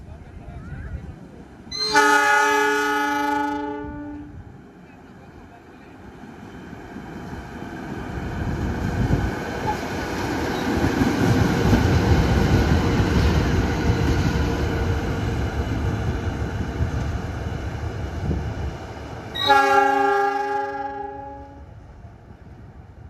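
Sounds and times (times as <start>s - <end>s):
train rumbling past: 0.0s - 23.0s
locomotive air horn chord: 1.8s - 4.4s, 19.4s - 21.7s.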